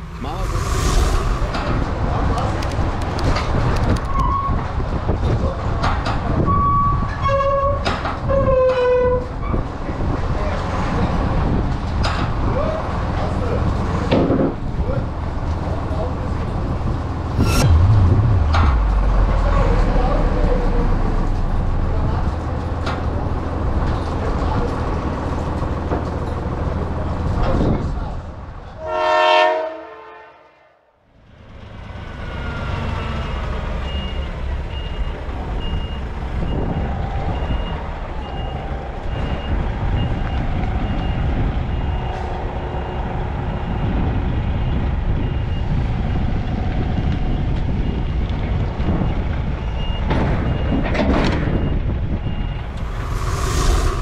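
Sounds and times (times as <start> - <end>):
short pitched tone: 17.3 - 21.2.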